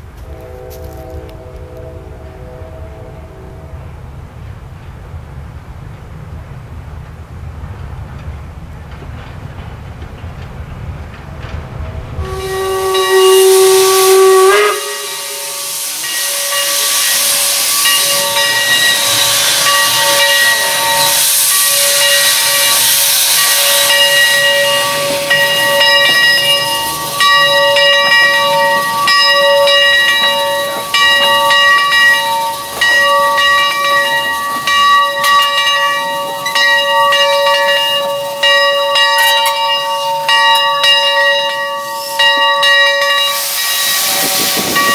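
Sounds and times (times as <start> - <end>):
steam whistle blast: 0.2 - 3.9, 12.2 - 33.4, 39.4 - 44.9
steam hissing: 12.2 - 44.9.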